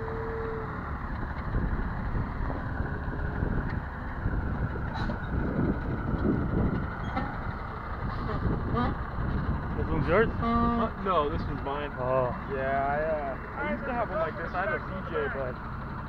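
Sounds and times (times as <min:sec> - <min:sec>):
truck engine idling: 0:00.0 - 0:16.0
wind buffeting microphone: 0:01.1 - 0:10.5.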